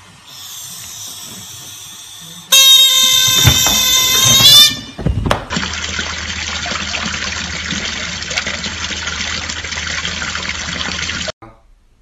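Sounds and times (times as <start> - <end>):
loud high-pitched tone: 2.5 - 5.0
knocks: 3.4 - 5.6.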